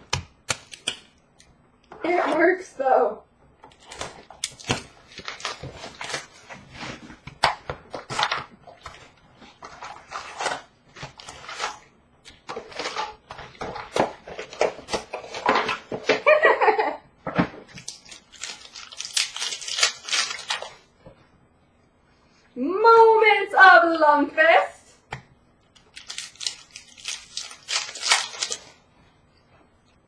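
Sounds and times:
foil wrappers rustling: 3.7 - 7.2, 7.9 - 16.4, 17.7 - 20.9, 25.8 - 28.8
wrapper tearing: 3.7 - 7.2, 7.9 - 11.8, 17.7 - 20.8, 25.8 - 28.8.

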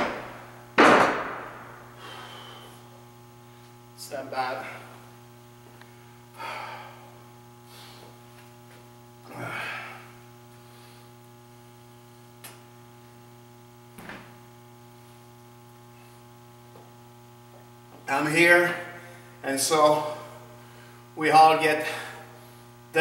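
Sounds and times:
electrical mains hum: 0.0 - 23.0.

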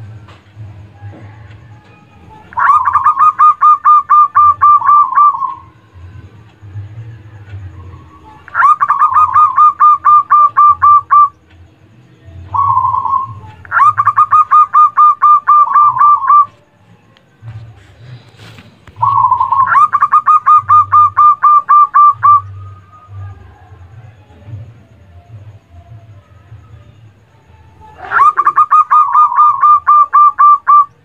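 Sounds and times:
dove cooing: 1.1 - 6.0, 7.3 - 11.3, 12.5 - 16.6, 17.4 - 23.4, 27.8 - 31.0.

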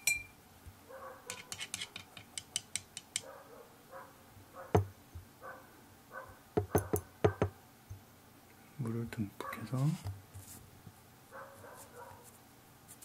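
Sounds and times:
distant dogs barking: 0.9 - 1.5, 3.2 - 7.6, 9.4 - 9.8, 11.3 - 12.3
paintbrush clicking against palette: 1.3 - 3.3.

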